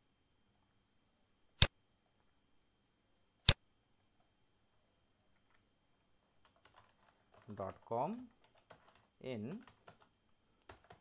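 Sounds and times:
faint keyboard typing: 0:05.3 - 0:05.7, 0:06.3 - 0:11.0.

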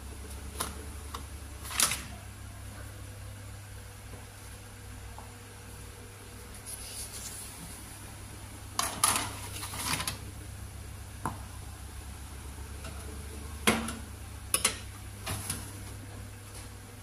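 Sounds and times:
steady low hum: 0:00.0 - 0:17.0
metal baking trays clattering: 0:08.8 - 0:10.2.

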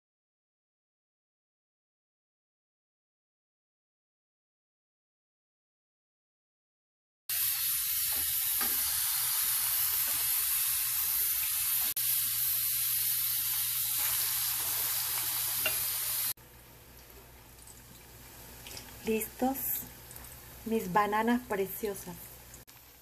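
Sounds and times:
plantain deep-frying in hot oil: 0:07.3 - 0:23.0.

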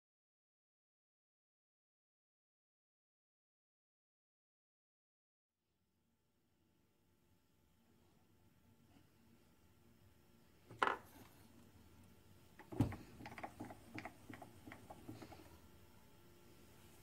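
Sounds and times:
faint steady hum: 0:06.0 - 0:17.0.

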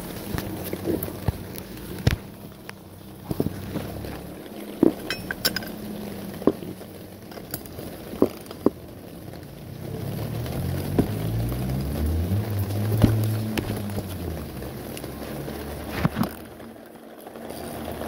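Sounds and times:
metal socket clinks and taps: 0:05.1 - 0:05.7.

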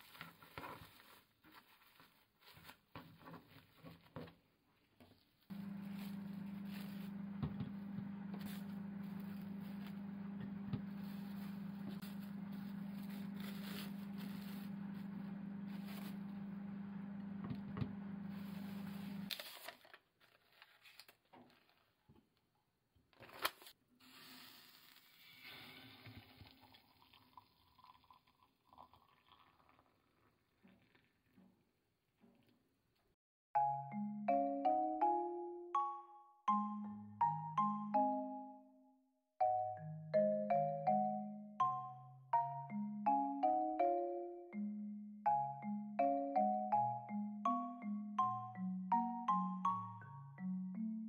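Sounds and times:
steady machine hum: 0:05.5 - 0:19.3
cling film crinkling: 0:10.9 - 0:16.2, 0:18.3 - 0:21.9.

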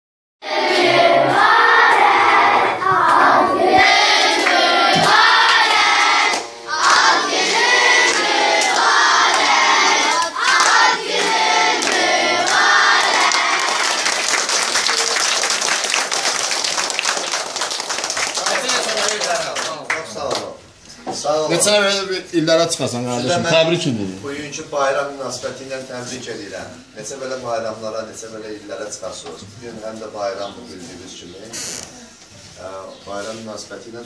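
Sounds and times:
children singing in chorus: 0:00.4 - 0:14.3
hand clapping: 0:08.0 - 0:09.5, 0:10.1 - 0:20.5.

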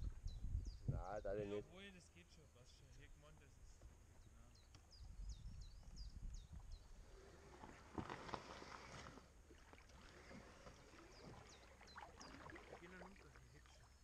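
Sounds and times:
kayak knocking and rustling: 0:07.5 - 0:13.6.

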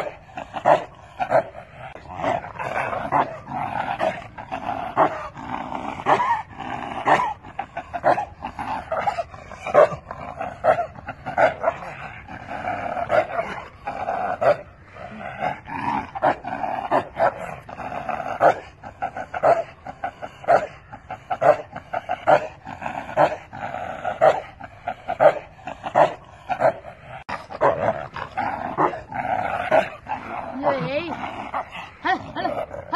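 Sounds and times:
dog barking: 0:09.7 - 0:10.0.

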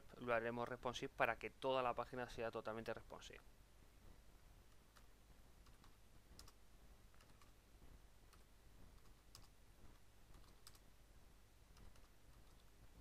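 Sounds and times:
faint low hum: 0:00.0 - 0:13.0
soft keyboard typing: 0:04.7 - 0:11.0, 0:11.7 - 0:13.0.

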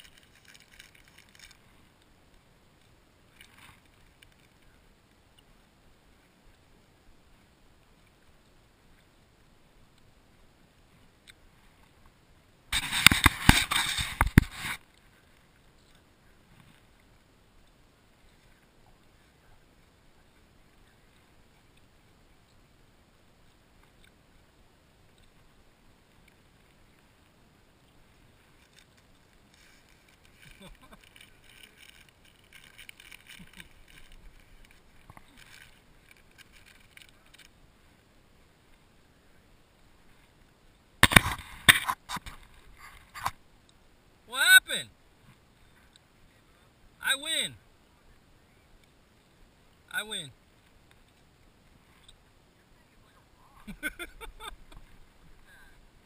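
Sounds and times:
camera handling rubbing: 0:12.8 - 0:14.8, 0:41.0 - 0:43.4.

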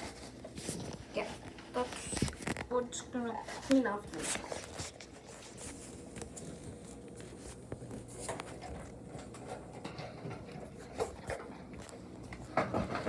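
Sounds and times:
light rustling of dog moving: 0:00.0 - 0:09.4.

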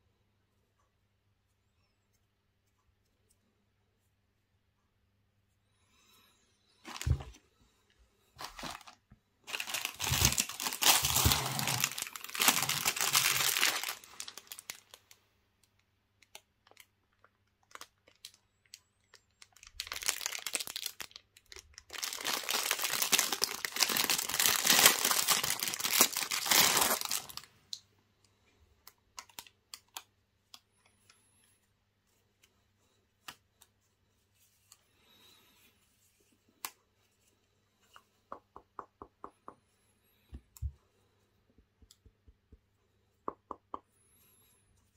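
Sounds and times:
plastic packaging crinkling and tearing: 0:06.9 - 0:07.4, 0:08.4 - 0:15.1, 0:15.7 - 0:27.5.

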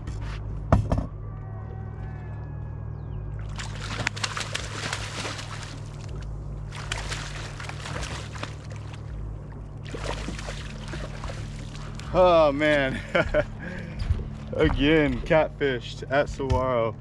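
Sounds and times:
steady low hum: 0:00.0 - 0:17.0
water splashing and sloshing: 0:03.3 - 0:16.7.

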